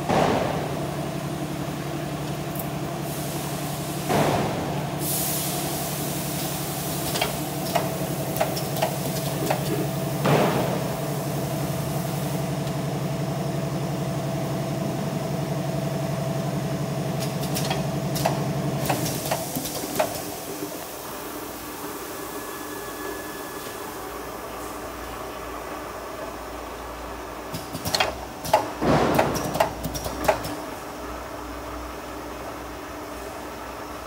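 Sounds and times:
machine motor hum: 6.0s - 31.3s.

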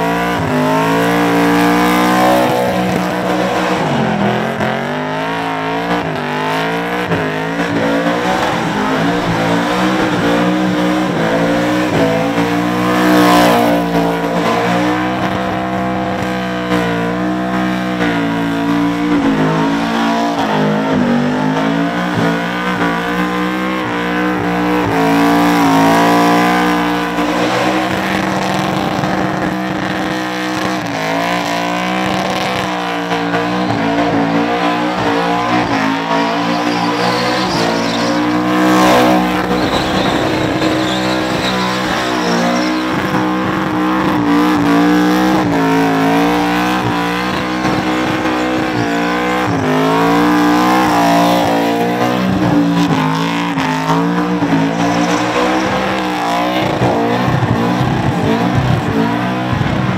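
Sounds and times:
car engine revving: 0.0s - 59.9s
tyres squealing: 32.1s - 44.8s, 45.6s - 59.1s.

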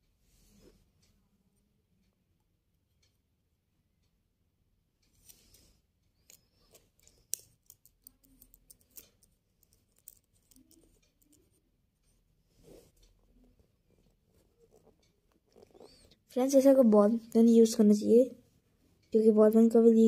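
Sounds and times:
plastic pen clicking and rubbing: 6.2s - 11.6s, 14.0s - 16.2s.

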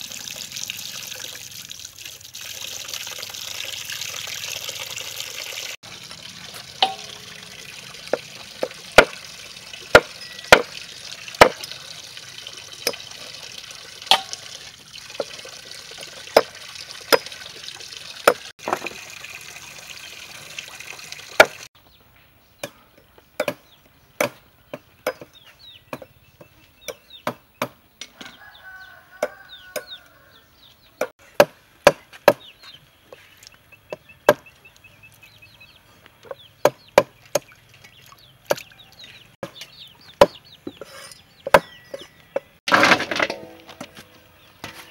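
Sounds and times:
running tap water: 0.0s - 21.7s.

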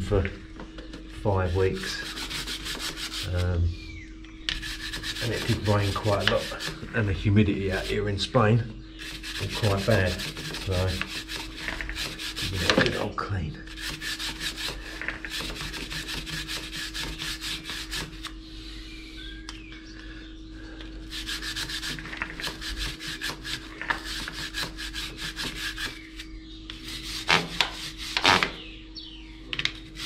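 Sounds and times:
brush scraping: 1.3s - 3.6s, 4.5s - 8.3s, 8.9s - 18.4s, 21.0s - 28.7s, 29.7s - 30.0s
brush scrubbing a wet chain: 1.4s - 3.5s, 4.6s - 7.0s, 7.6s - 8.1s, 9.0s - 13.0s, 13.7s - 18.3s, 21.0s - 28.4s.

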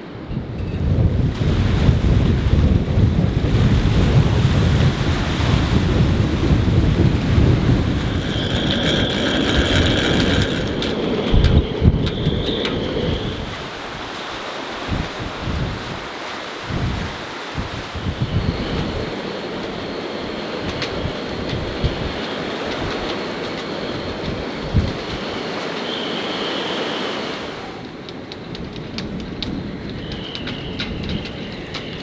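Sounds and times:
wind buffeting microphone: 0.0s - 32.0s
waves washing: 1.0s - 32.0s
high whistling tone: 7.9s - 13.7s, 25.3s - 27.8s, 29.9s - 32.0s.

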